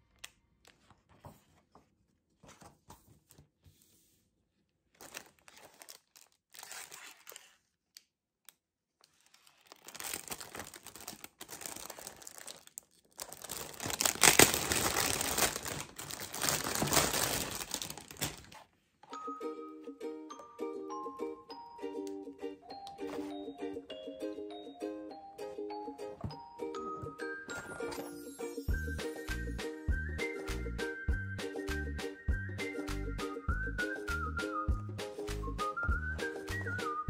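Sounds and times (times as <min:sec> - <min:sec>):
plastic bag crinkling: 0:05.0 - 0:07.7, 0:09.1 - 0:18.7.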